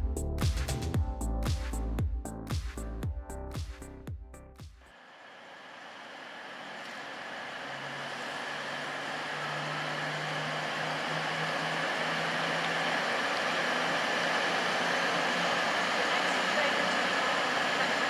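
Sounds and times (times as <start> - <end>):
diesel train pulling away: 5.9 - 18.0
low steady drone: 6.6 - 18.0.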